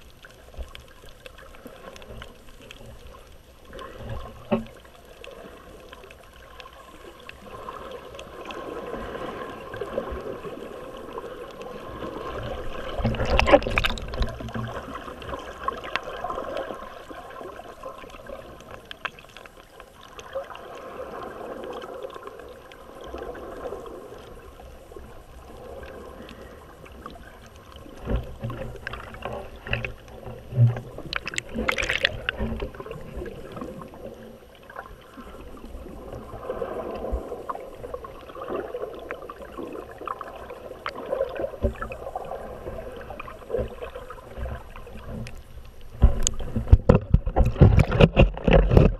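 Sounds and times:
underwater clicks and knocks: 3.8s - 5.0s, 11.6s - 16.8s, 27.0s - 34.2s, 40.8s - 42.1s, 43.1s - 48.9s.

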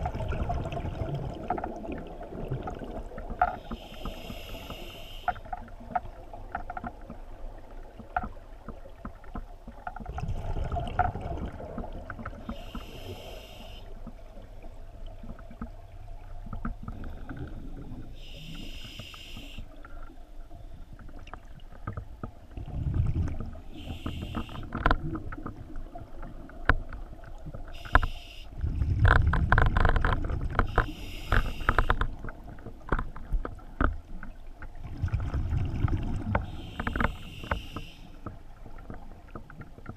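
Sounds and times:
exhaled bubbles gushing: 0.0s - 3.4s, 10.1s - 12.5s, 22.6s - 23.7s, 34.8s - 36.6s
regulator inhale hiss: 3.6s - 5.5s, 12.5s - 14.0s, 18.1s - 19.8s, 23.7s - 24.7s, 27.8s - 28.6s, 30.7s - 32.0s, 36.4s - 38.2s.

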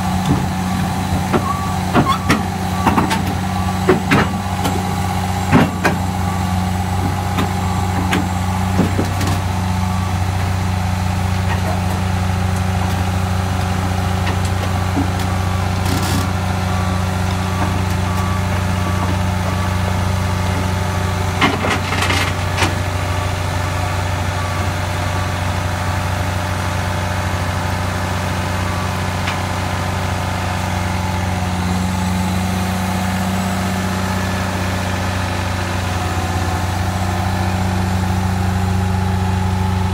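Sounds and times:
steel tracks clanking on metal: 0.0s - 10.4s
diesel engine running: 0.0s - 39.9s.

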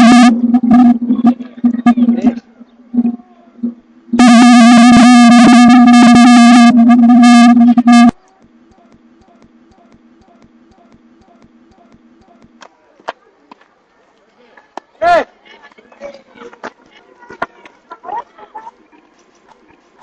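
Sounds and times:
loud low horn blast: 0.0s - 1.0s, 4.2s - 8.1s
faint regular ticking: 8.1s - 12.6s.

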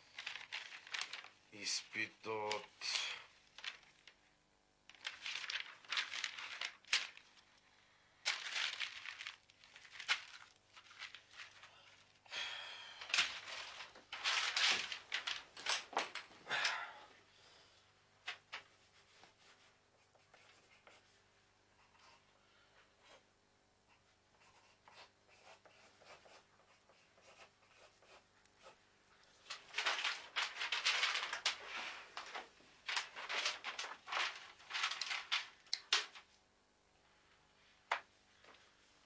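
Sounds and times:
paper crumpling and tearing: 0.0s - 4.2s, 4.9s - 7.6s, 8.2s - 12.2s, 13.0s - 16.2s, 29.5s - 36.2s.

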